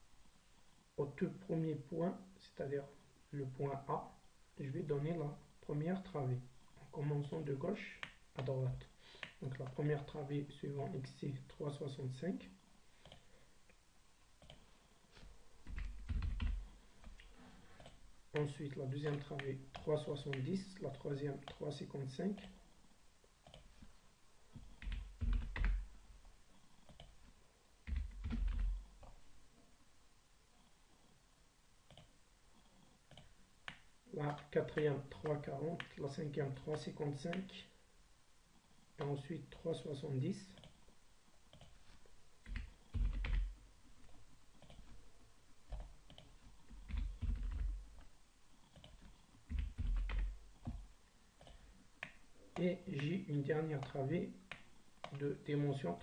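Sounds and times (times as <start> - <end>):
keyboard typing: 15.6 - 17.2, 24.5 - 25.9, 27.8 - 29.2, 42.4 - 43.6, 45.7 - 48.0, 48.7 - 50.8.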